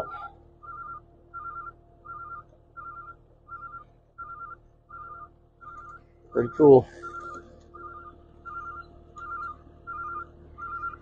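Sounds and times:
electronic warning beeps: 0:00.0 - 0:11.0
faint machine hum: 0:00.0 - 0:11.0.

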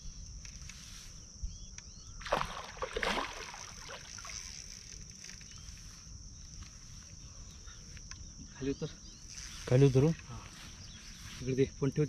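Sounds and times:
water splashing and swishing: 0:02.2 - 0:05.4.

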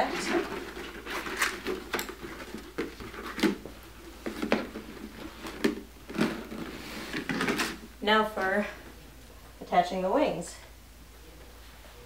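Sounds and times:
plastic sheets flexing and rustling: 0:00.0 - 0:07.9.

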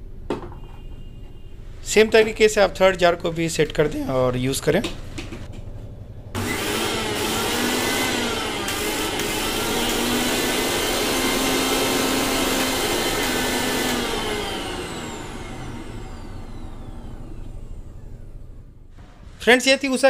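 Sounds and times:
mixer grinder motor running: 0:06.4 - 0:19.0.

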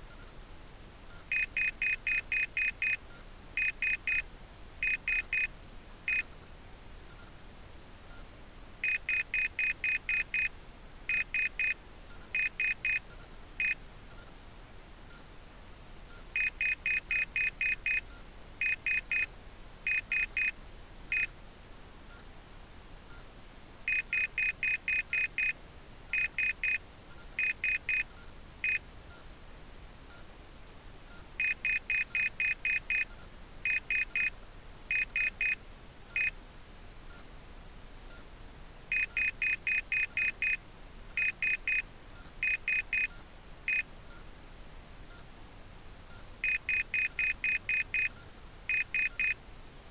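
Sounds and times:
faint steady hiss: 0:00.0 - 0:49.9
high-pitched altimeter beeps: 0:39.0 - 0:40.6, 0:46.4 - 0:49.4.

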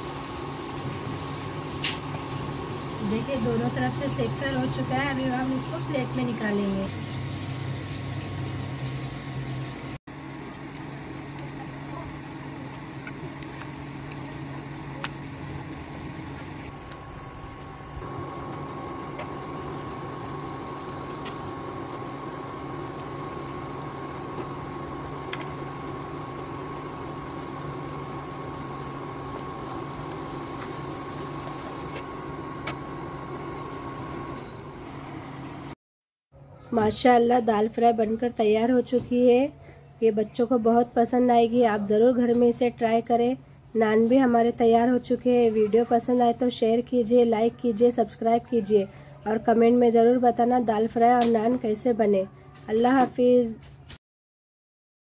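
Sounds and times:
kitchen appliance motor hum: 0:00.0 - 0:35.8.

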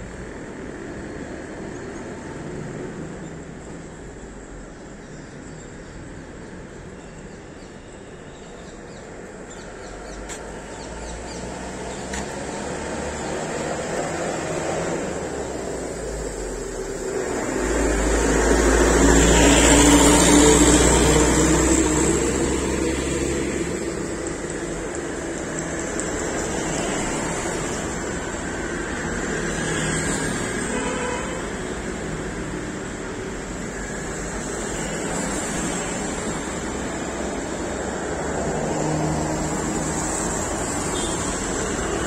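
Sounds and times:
vehicle passing on wet road: 0:10.9 - 0:30.6.

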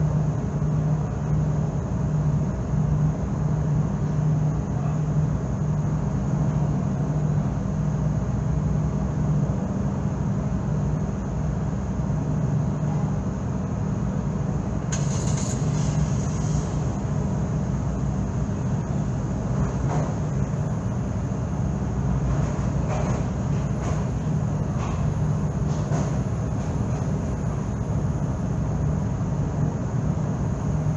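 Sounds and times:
low engine drone: 0:00.0 - 0:30.9
brief hiss: 0:14.9 - 0:16.9.

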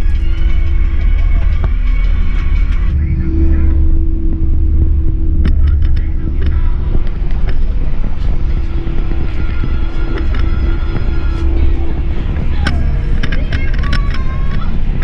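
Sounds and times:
bus engine and road rumble: 0:00.0 - 0:15.0
steady hum: 0:00.0 - 0:15.0
sharp ticks and rattles: 0:03.8 - 0:15.0.

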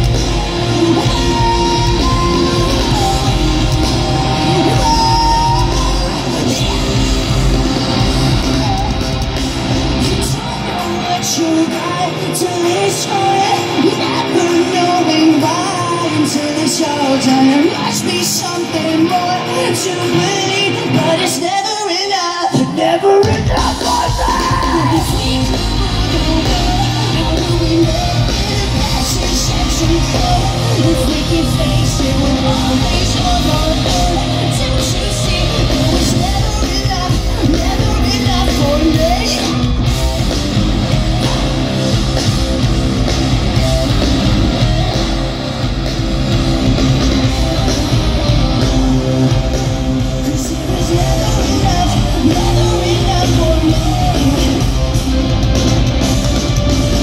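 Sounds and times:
man singing: 0:00.0 - 0:39.8, 0:50.0 - 0:55.3
rock band playing live: 0:00.0 - 0:57.0.

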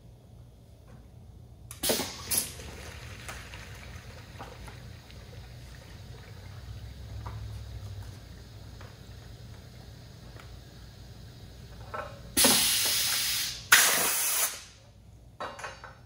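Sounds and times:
piston filler bursts: 0:01.7 - 0:02.6, 0:11.8 - 0:14.8
liquid running into a bottle: 0:01.8 - 0:09.9.

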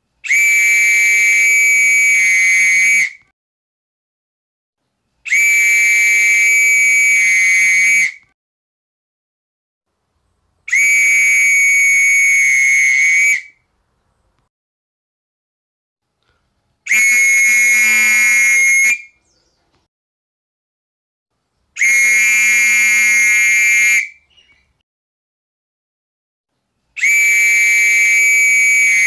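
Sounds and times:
high-pitched whistle blasts: 0:00.2 - 0:03.3, 0:05.2 - 0:08.4, 0:10.7 - 0:13.7, 0:16.9 - 0:19.3, 0:21.8 - 0:24.6, 0:27.0 - 0:29.0.

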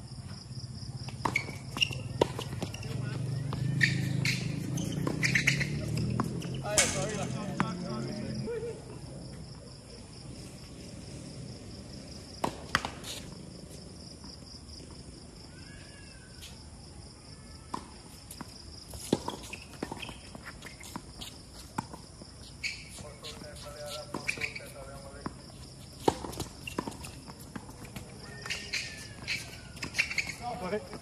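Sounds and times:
tennis ball bouncing on court: 0:01.0 - 0:08.1, 0:12.4 - 0:13.2, 0:17.7 - 0:22.2, 0:22.9 - 0:31.0.

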